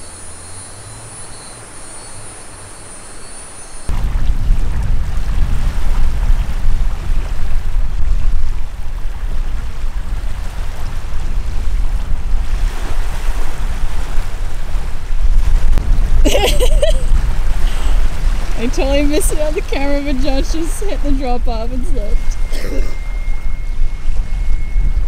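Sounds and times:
wind buffeting microphone: 3.9s - 25.0s
small waves lapping: 16.3s - 23.1s.

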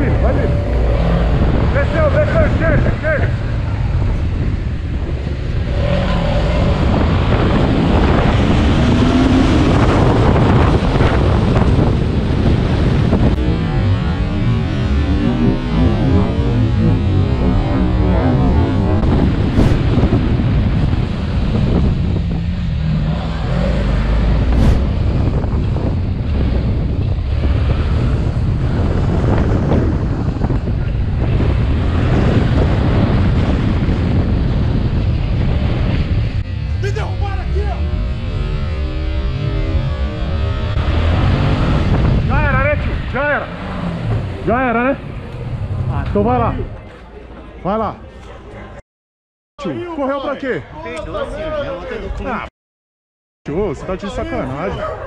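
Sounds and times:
motorcycle engine accelerating: 0.0s - 46.4s
wind rush on microphone: 0.0s - 46.8s.

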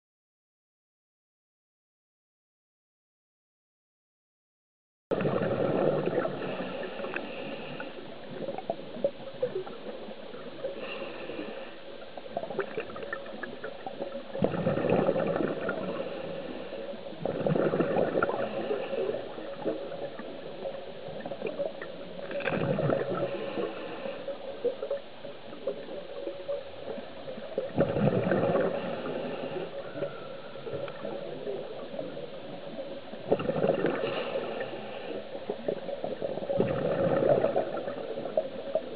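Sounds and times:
exhaled bubbles gurgling: 5.1s - 38.9s
steady hum: 5.2s - 38.9s
regulator hiss on inhale: 6.2s - 9.1s, 9.9s - 12.6s, 15.6s - 17.2s, 18.2s - 22.3s, 23.1s - 25.0s, 28.6s - 32.8s, 33.8s - 36.2s.

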